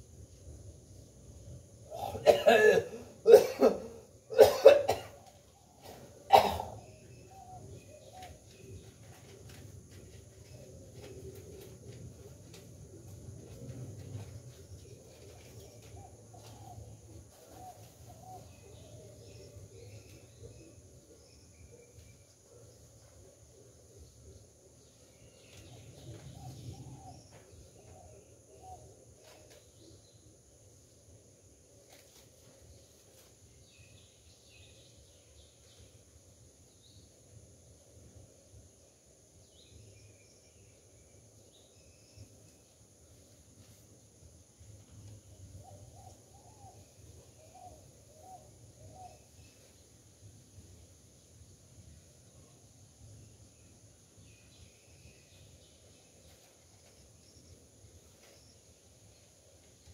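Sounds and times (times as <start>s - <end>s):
person coughing hard: 1.9s - 5.2s, 6.3s - 6.8s.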